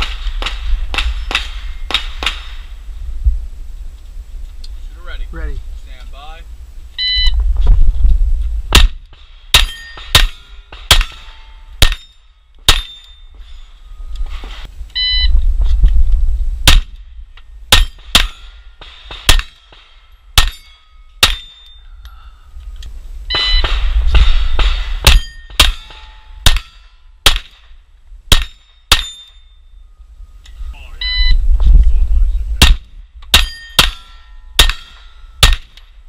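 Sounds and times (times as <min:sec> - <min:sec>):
shot timer beep: 0:07.0 - 0:07.4, 0:15.0 - 0:15.3, 0:23.3 - 0:23.7, 0:31.0 - 0:31.4
pistol shots: 0:08.7 - 0:12.1, 0:17.7 - 0:20.6, 0:23.4 - 0:27.7, 0:28.3 - 0:29.3, 0:32.6 - 0:35.8
steel plate clanging: 0:08.8 - 0:14.7, 0:17.7 - 0:21.9, 0:23.3 - 0:27.2, 0:32.6 - 0:35.9.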